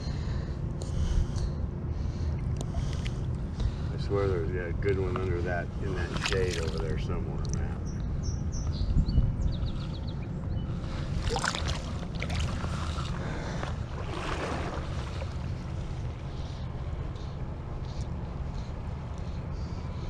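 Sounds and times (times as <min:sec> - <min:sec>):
wind buffeting microphone: 0:02.4 - 0:20.0
shallow running water: 0:05.8 - 0:07.0, 0:11.0 - 0:15.8
water splashes: 0:05.9 - 0:07.0, 0:11.1 - 0:15.8.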